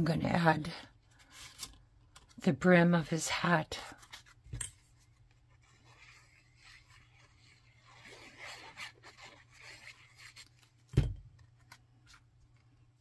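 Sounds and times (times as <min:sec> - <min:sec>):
glue bottle tip scratching paper: 0:05.4 - 0:10.6
dull thump on work surface: 0:10.9 - 0:11.2.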